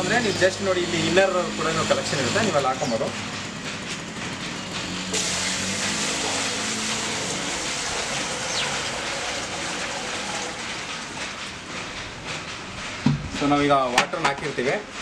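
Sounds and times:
water pouring and splashing: 5.1s - 13.0s.

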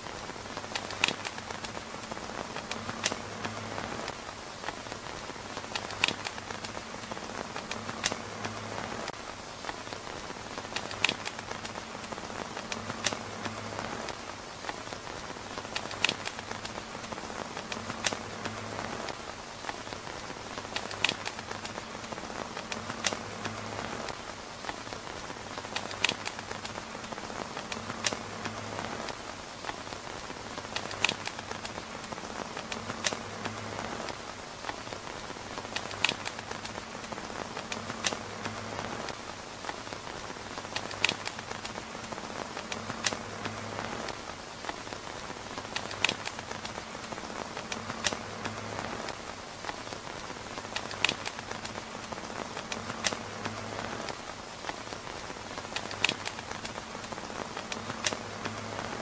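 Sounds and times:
rain pattering on tent roof: 0.0s - 59.0s
sharp ticks: 0.7s - 4.8s, 5.6s - 8.6s, 10.7s - 14.2s, 35.7s - 39.8s.

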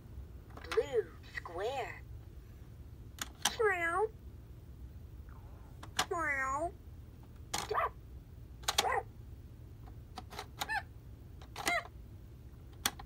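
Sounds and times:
plastic toy button clicks: 3.2s - 3.6s, 5.8s - 6.2s, 7.5s - 7.8s, 8.6s - 8.9s, 11.4s - 11.9s, 12.7s - 13.0s.

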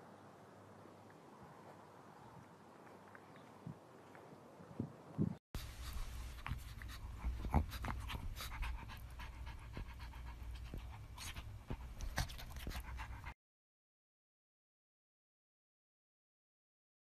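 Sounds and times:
dog breathing hard: 5.6s - 13.4s.

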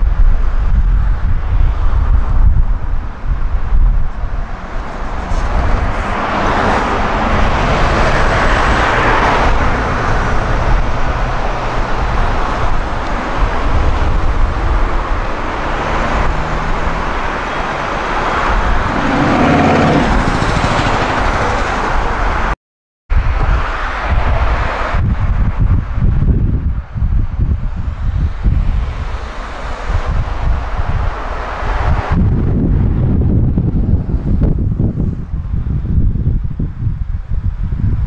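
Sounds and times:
street traffic: 0.0s - 38.0s
wind buffeting microphone: 0.0s - 38.0s
bus driving past: 4.2s - 22.6s.

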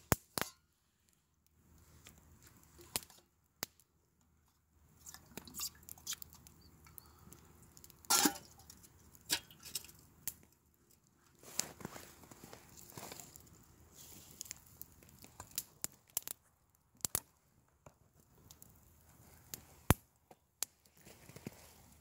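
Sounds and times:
small clicks and rustles: 1.0s - 22.0s.

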